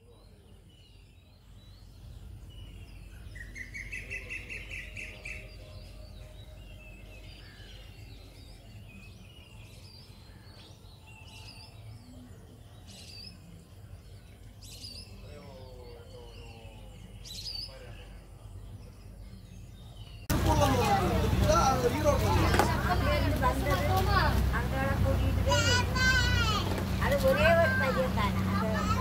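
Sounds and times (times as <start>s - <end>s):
birds chirping: 0.0s - 29.0s
bird trill: 0.3s - 23.2s.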